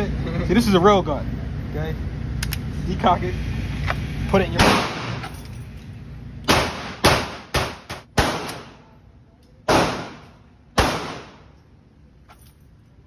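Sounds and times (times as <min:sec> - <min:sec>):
gunshots echoing indoors: 0:06.5 - 0:08.8, 0:09.7 - 0:11.5.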